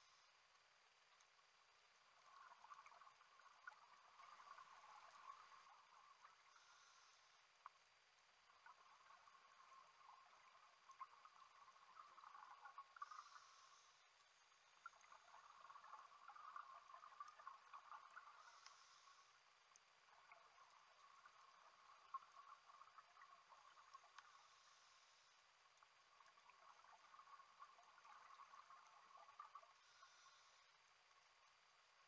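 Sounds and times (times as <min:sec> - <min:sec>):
underwater crackle: 0:00.0 - 0:32.0
scuba exhaust bubbles hissing: 0:02.4 - 0:07.4, 0:08.8 - 0:14.0, 0:15.1 - 0:19.4, 0:20.1 - 0:25.4, 0:26.6 - 0:30.8.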